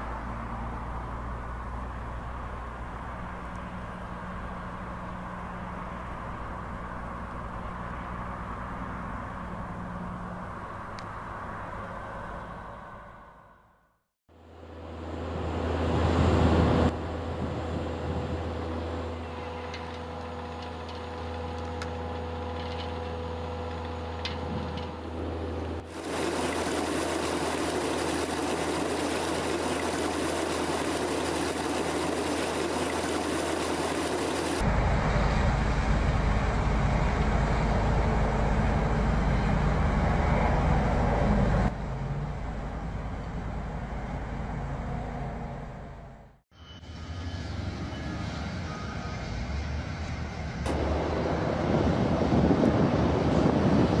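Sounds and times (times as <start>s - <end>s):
tractor engines running: 14.9s - 44.9s, 49.1s - 54.0s
feed mixer wagon working: 25.9s - 34.7s.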